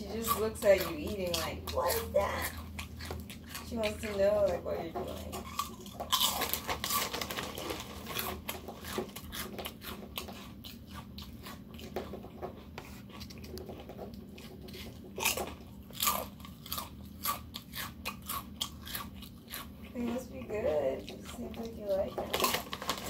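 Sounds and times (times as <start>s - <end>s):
person crunching potato chips: 5.4s - 11.9s, 14.2s - 19.9s, 21.9s - 23.0s.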